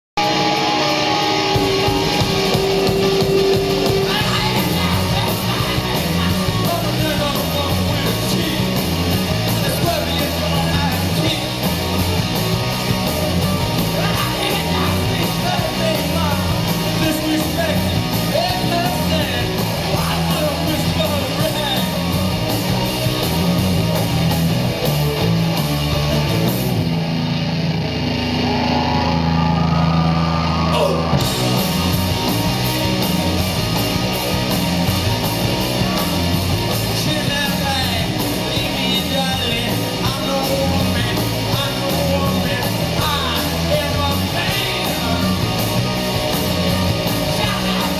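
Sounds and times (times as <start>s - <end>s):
rock band playing live: 0.2s - 47.9s
person singing: 2.5s - 8.8s.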